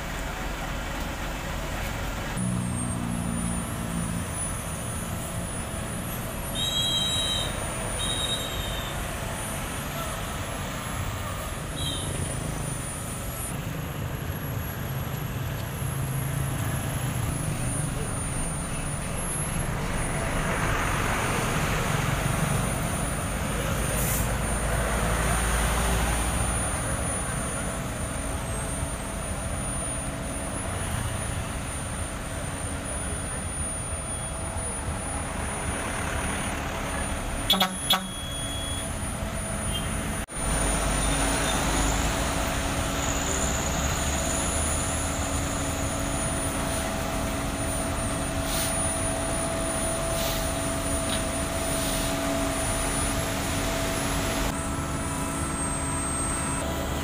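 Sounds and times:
diesel engines running: 0.0 - 57.0
vehicle horn double honk: 6.5 - 9.0, 37.5 - 38.8.

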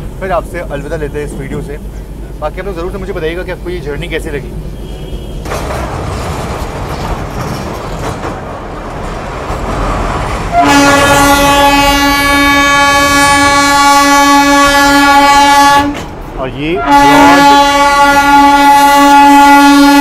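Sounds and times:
train rumbling over bridge: 0.0 - 20.0
wind: 0.0 - 20.0
train horn blast: 10.5 - 16.1, 16.7 - 20.0.

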